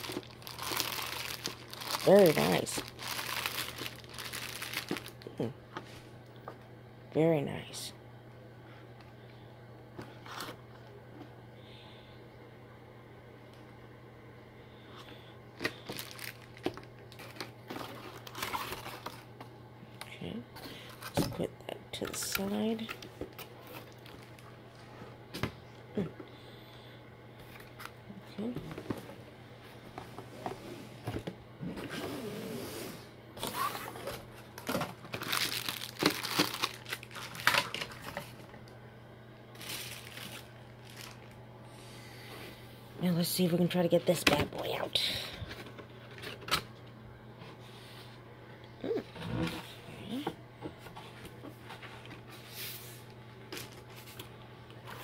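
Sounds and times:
packaging crinkling and rustling: 0.0s - 5.3s, 15.6s - 19.4s, 22.0s - 24.5s, 33.4s - 38.6s, 39.5s - 41.4s, 53.5s - 55.0s.

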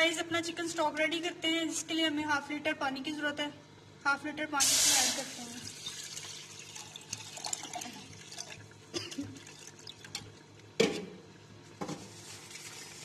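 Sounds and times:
water pouring into a metal pot: 4.6s - 10.6s.

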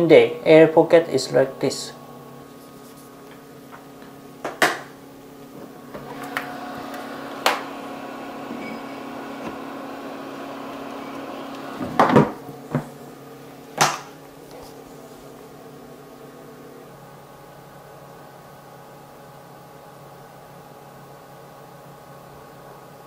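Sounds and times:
incubator humming: 0.0s - 18.0s.

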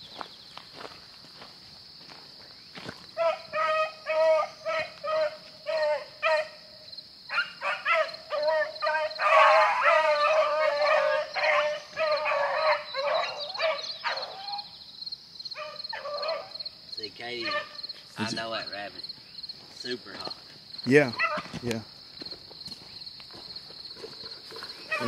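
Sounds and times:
hounds baying and barking: 3.2s - 14.8s, 15.5s - 18.4s, 21.2s - 21.6s, 24.0s - 25.0s.

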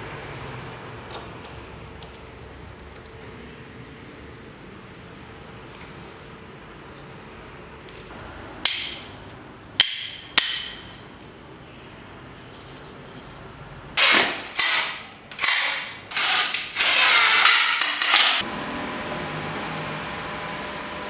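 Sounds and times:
cordless drill running: 14.0s - 18.4s.

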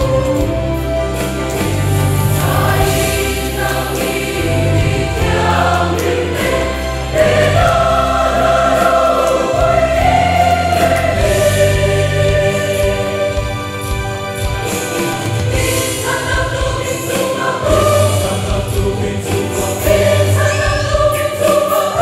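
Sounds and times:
choir singing a hymn: 0.0s - 22.0s.

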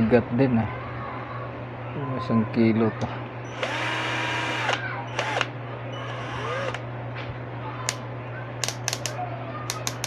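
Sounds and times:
cordless drill motor whining: 3.5s - 6.8s.

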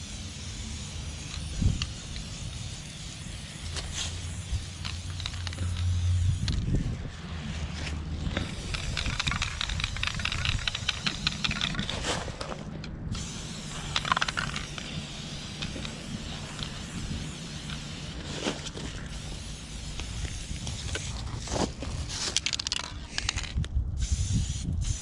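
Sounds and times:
spray can hissing: 0.0s - 6.6s, 8.4s - 12.0s, 13.1s - 21.2s
spray can ball rattling: 0.0s - 6.7s, 8.3s - 21.3s, 22.1s - 25.0s.

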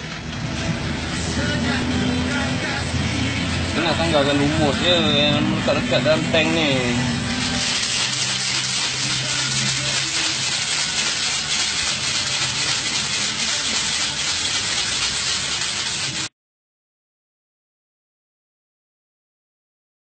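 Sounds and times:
sand and water shaken in tank: 7.4s - 16.3s.

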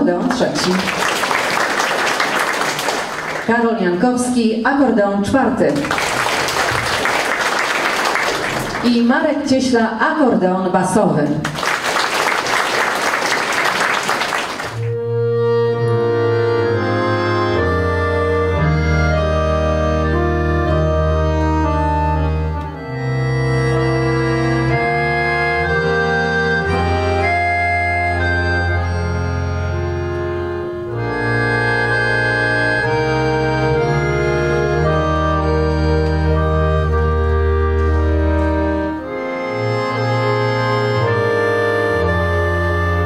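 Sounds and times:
accordion ensemble playing chords: 0.0s - 11.0s, 11.6s - 43.0s
applause: 0.3s - 3.6s, 5.7s - 9.0s, 11.4s - 15.0s.

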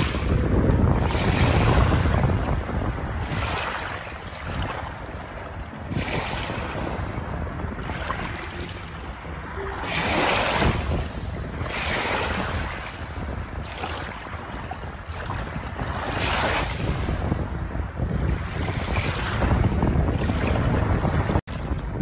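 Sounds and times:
waves lapping on pebble shore: 0.0s - 17.5s
wind rumbling on microphone: 0.0s - 22.0s.

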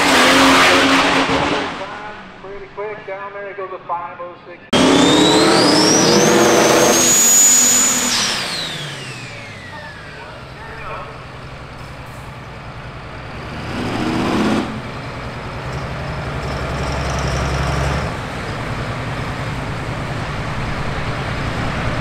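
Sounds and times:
engine revving: 0.0s - 2.3s, 4.7s - 22.0s
diesel truck engine rumble: 4.7s - 22.0s.

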